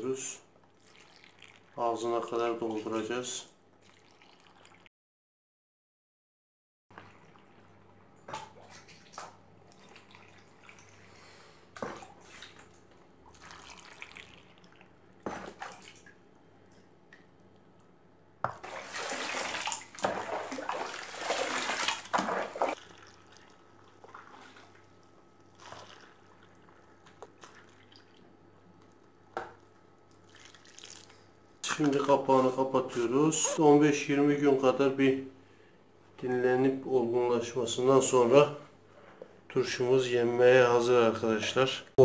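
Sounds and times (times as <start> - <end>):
water gushing into a jar: 0.6 - 2.2, 3.8 - 4.9, 9.6 - 11.1, 13.3 - 16.1, 18.5 - 28.3, 30.2 - 32.0
small splashes and knocks: 6.9 - 11.0, 11.7 - 17.6, 18.4 - 31.2.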